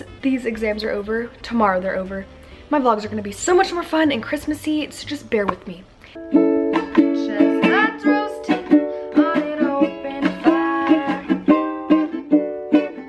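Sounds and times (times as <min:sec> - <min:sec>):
ukulele strumming chords: 0:06.2 - 0:13.0
woman singing: 0:06.8 - 0:11.6.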